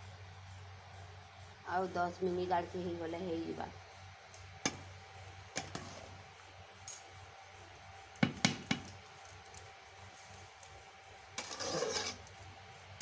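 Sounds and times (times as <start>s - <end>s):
spatula scraping steel bowl: 11.4s - 12.3s.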